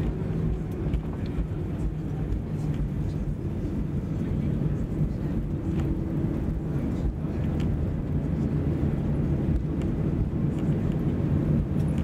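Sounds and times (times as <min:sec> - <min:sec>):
jet engines: 0:00.0 - 0:12.0
wheels rumbling on runway: 0:00.0 - 0:12.0.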